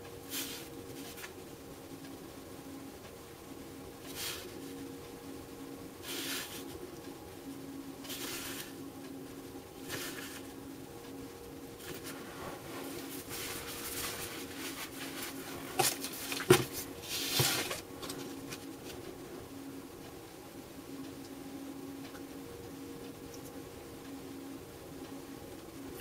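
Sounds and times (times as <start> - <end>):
steady low hum: 0.0 - 26.0
soft rustles and scrapes: 0.3 - 1.4, 8.0 - 8.8, 9.9 - 10.6, 11.8 - 19.1.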